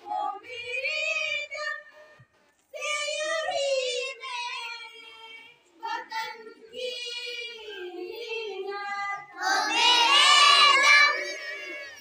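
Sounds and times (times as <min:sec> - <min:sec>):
children singing together: 0:02.8 - 0:12.0.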